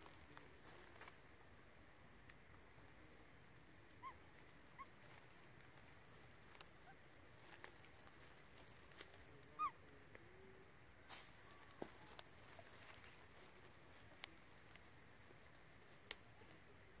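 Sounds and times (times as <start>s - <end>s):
rustling in leaf litter: 5.0s - 9.6s, 11.0s - 16.5s
monkey squeaky calls: 9.6s - 9.8s.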